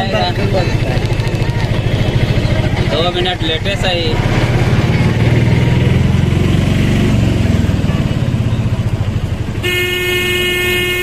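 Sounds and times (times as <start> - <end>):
auto-rickshaw engine running: 0.0 - 11.0
vehicle horn steady tone: 7.6 - 8.4, 9.6 - 11.0.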